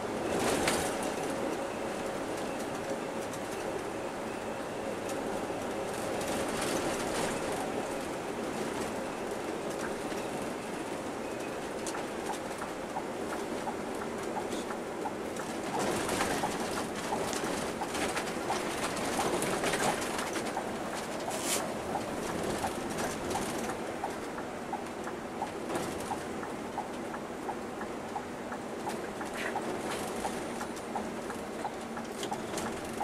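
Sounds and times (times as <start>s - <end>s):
bus engine and road noise: 0.0s - 33.0s
light repeating tick: 22.3s - 32.8s.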